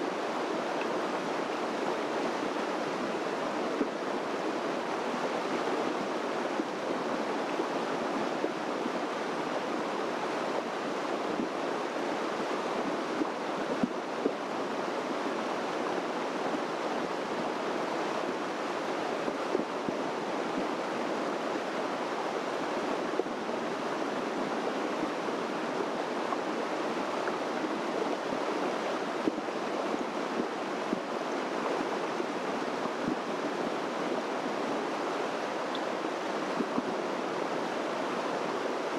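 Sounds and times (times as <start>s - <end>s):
water rushing: 0.0s - 38.9s.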